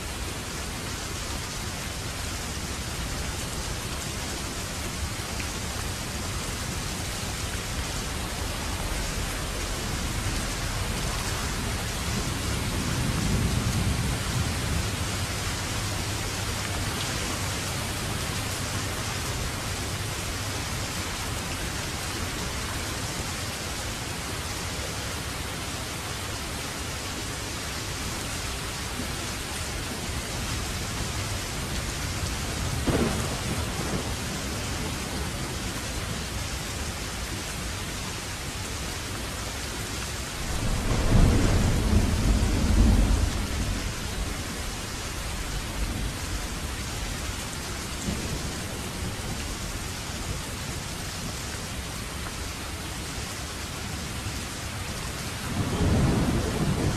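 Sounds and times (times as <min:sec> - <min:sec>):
steady rain hissing: 0:00.0 - 0:56.9
thunder rumbling: 0:08.4 - 0:16.8, 0:32.6 - 0:35.4, 0:40.4 - 0:47.1, 0:55.4 - 0:56.9.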